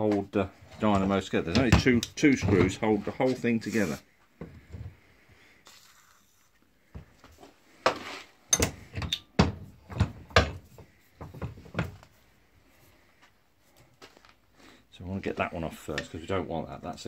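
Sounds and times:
metal knocks and clunks: 1.0 - 2.9, 8.5 - 12.0.

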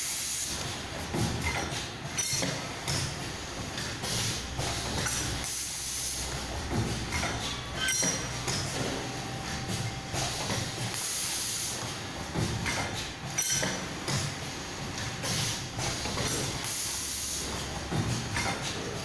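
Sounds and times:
low machine hum: 6.2 - 11.0.

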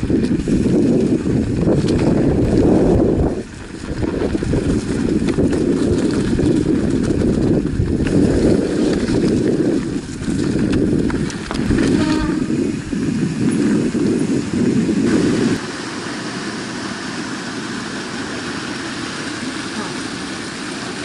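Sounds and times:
bike knocking and rattling: 0.0 - 15.6
wind on microphone: 0.0 - 15.7
bike tyres rumbling on dirt: 0.0 - 21.0.

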